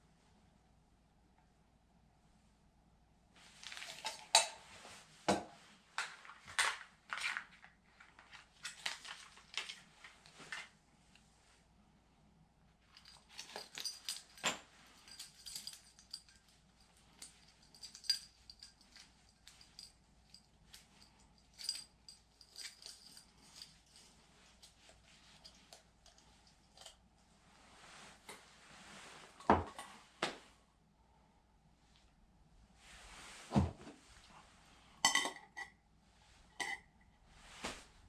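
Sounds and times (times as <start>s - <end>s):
metallic clicks and clinks: 12.9s - 27.0s
metal mug clinking: 35.0s - 35.7s, 36.6s - 36.9s.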